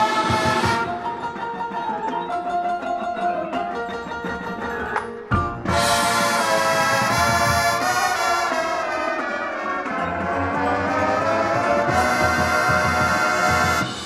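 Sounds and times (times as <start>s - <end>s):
marching band brass chords: 0.0s - 1.1s, 5.7s - 14.0s.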